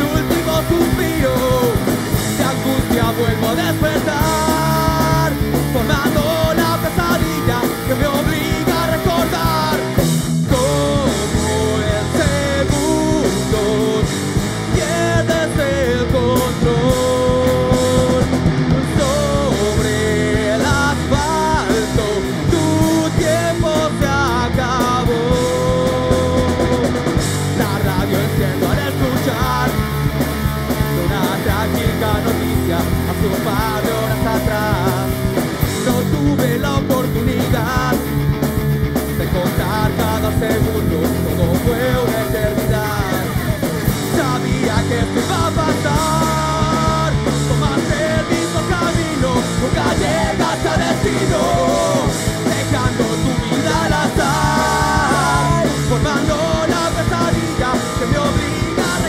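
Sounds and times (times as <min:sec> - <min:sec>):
rock band playing: 0:00.0 - 0:59.0.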